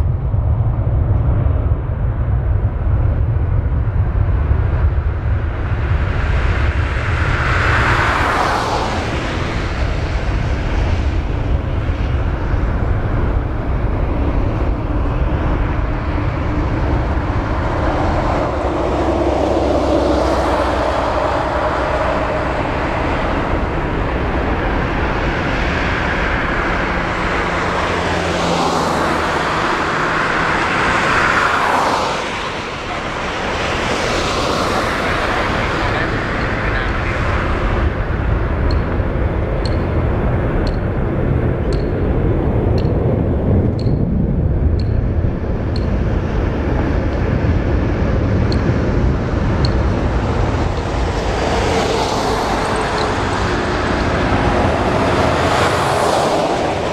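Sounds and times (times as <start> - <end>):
heavy low rumble: 0.0 - 56.9
jet engine noise: 0.0 - 56.9.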